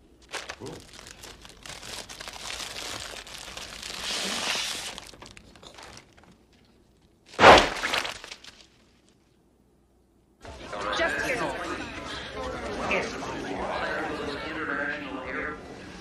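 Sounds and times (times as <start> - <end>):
loud crash: 7.4 - 8.2.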